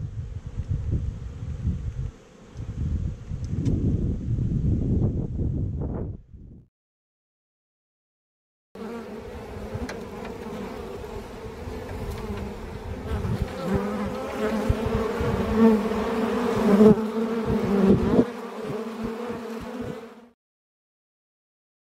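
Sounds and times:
honeybees buzzing: 8.8s - 20.4s.

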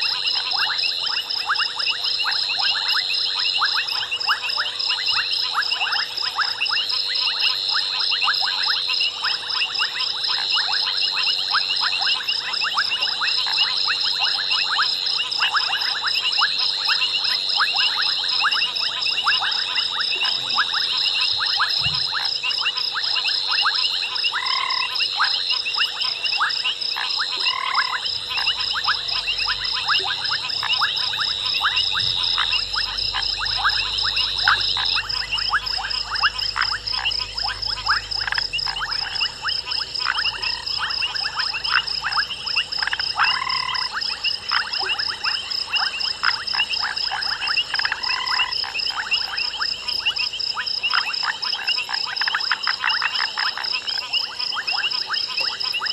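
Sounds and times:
frogs calling in rapid clicks: 0.0s - 55.9s
short loud frog calls: 0.0s - 55.9s.

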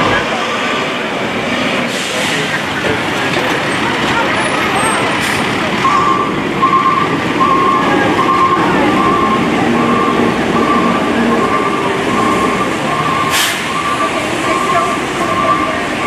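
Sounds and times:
street noise: 0.0s - 16.0s
truck engine rumble: 0.0s - 16.0s
reversing alarm beeping: 5.7s - 16.0s.

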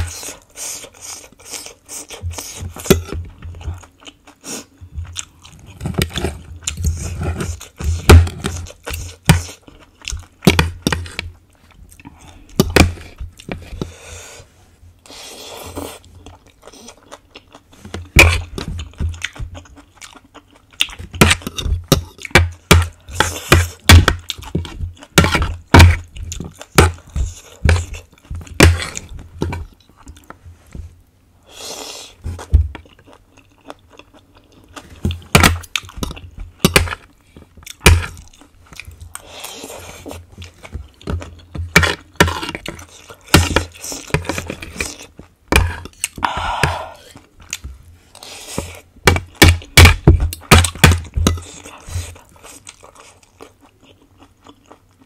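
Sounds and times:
chewing and crunching ribs: 0.0s - 13.8s, 15.7s - 30.4s, 32.2s - 46.4s, 47.0s - 55.0s.

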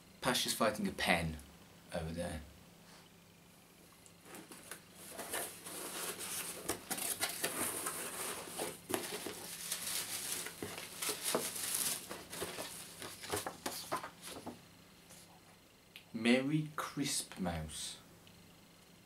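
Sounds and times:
cardboard and paper rustling: 4.2s - 14.6s.

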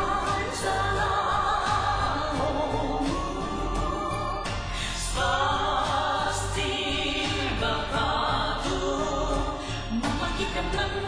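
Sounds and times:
music with sung vocals: 0.0s - 11.0s.

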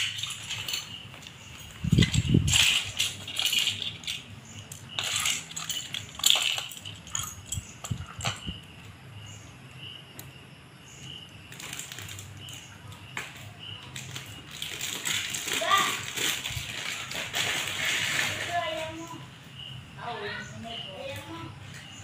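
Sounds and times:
plastic bricks clattering: 0.0s - 8.6s, 11.5s - 19.1s.

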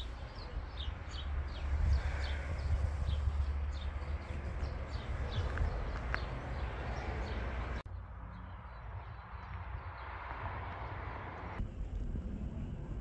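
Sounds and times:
wind rumble on microphone: 0.0s - 6.8s, 9.4s - 13.0s
small birds chirping: 0.0s - 7.7s.

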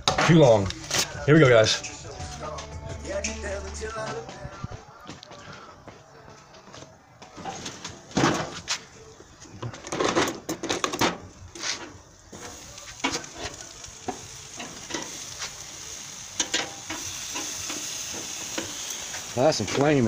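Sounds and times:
chicken sizzling on a grill: 11.5s - 20.0s.

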